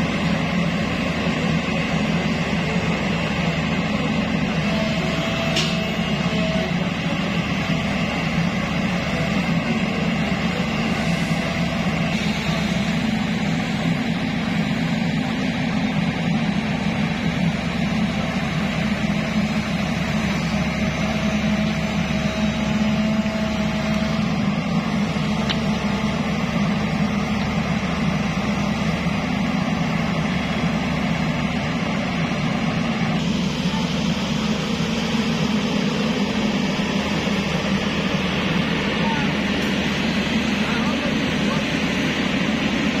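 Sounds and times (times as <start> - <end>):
excavator engine running: 0.0 - 43.0.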